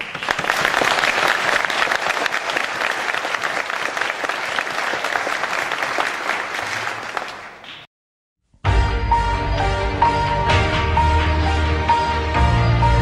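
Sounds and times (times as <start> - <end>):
audience applauding: 0.0 - 7.9
music: 8.5 - 13.0.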